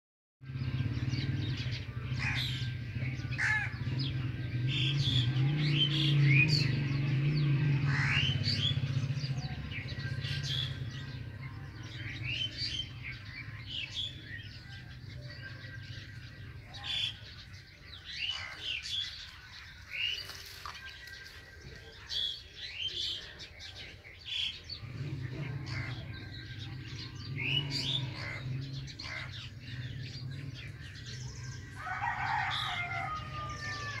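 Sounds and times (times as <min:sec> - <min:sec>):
birds chirping: 0:00.4 - 0:34.0
crows cawing: 0:02.2 - 0:02.6, 0:03.3 - 0:03.8, 0:07.9 - 0:08.4, 0:18.1 - 0:19.2, 0:25.6 - 0:26.2, 0:27.9 - 0:29.6, 0:31.5 - 0:34.0.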